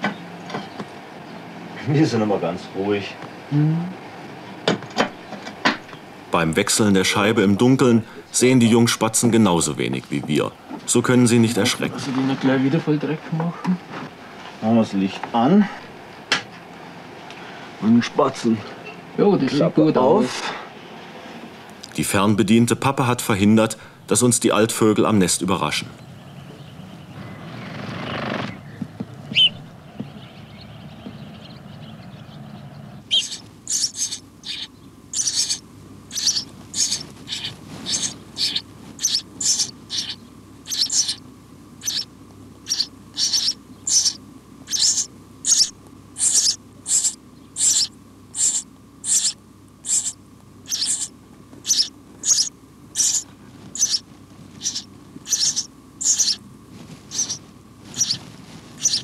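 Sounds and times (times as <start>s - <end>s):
nestlings begging with shrill calls: 29.3s - 59.0s
single bird chirp: 33.1s - 41.2s, 41.8s - 54.0s, 54.6s - 56.4s, 57.1s - 58.2s, 58.8s - 59.0s.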